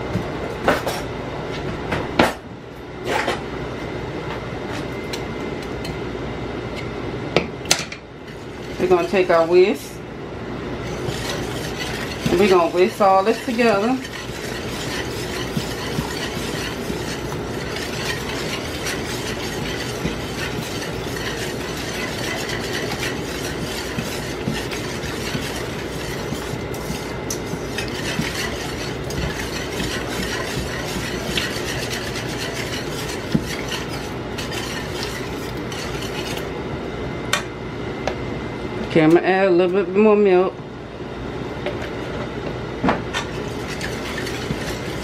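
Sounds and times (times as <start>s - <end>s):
whisk beating sauce in a pan: 8.2s - 10.0s, 10.8s - 36.5s, 43.2s - 45.0s.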